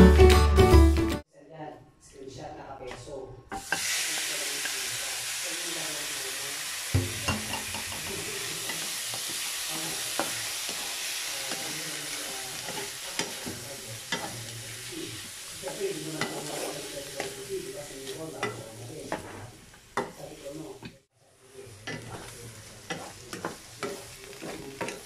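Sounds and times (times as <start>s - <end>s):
meat sizzling in a wok: 3.6s - 25.0s
spatula knocking and scraping pan: 7.0s - 14.8s, 15.5s - 17.4s, 18.0s - 21.0s, 21.8s - 25.0s.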